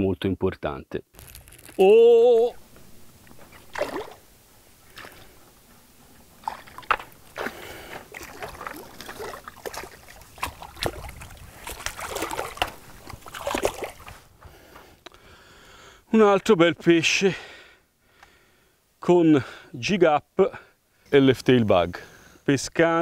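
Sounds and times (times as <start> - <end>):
fish thrashing and splashing in water: 3.5 - 4.2, 6.4 - 14.1.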